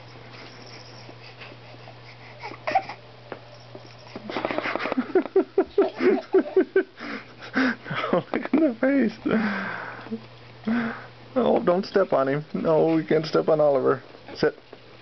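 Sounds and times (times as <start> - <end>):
baby fussy crying: 2.2 - 3.0.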